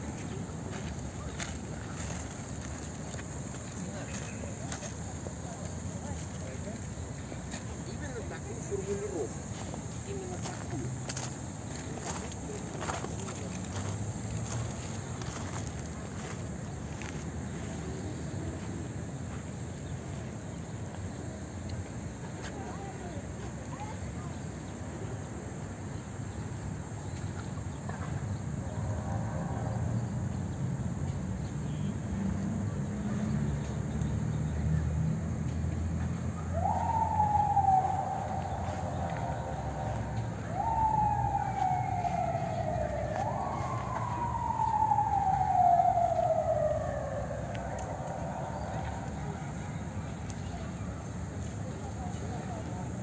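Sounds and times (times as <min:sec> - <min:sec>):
siren wailing: 0:36.4 - 0:50.4.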